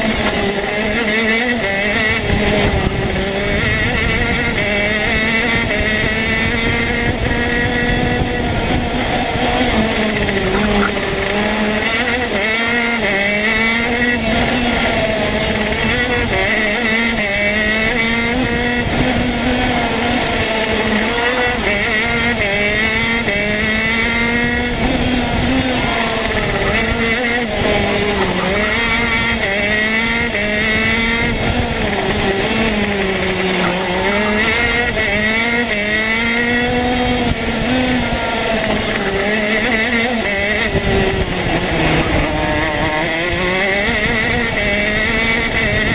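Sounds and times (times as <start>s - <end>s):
two-stroke kart engine racing: 0.0s - 45.9s.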